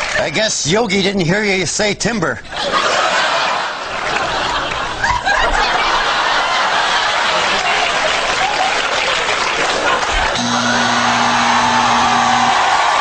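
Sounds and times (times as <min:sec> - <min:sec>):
audience applauding: 0:00.0 - 0:00.4, 0:03.2 - 0:13.0
studio audience laughing: 0:02.5 - 0:13.0
low steady buzz: 0:10.4 - 0:13.0.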